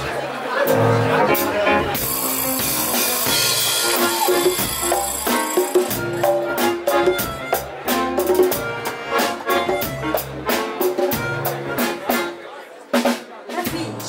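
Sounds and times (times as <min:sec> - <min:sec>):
drum kit and hand percussion: 0:00.0 - 0:14.0
accordion sustained notes: 0:00.7 - 0:12.6.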